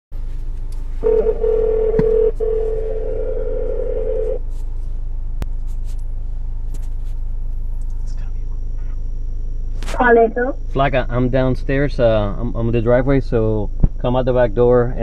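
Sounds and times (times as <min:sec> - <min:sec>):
low steady hum: 0:00.2 - 0:15.0
telephone ringing tone: 0:01.0 - 0:04.4.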